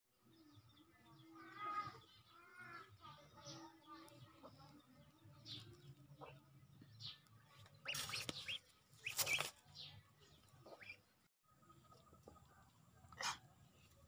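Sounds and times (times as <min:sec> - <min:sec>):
ducklings peeping: 0:07.8 - 0:09.6, 0:10.6 - 0:11.1.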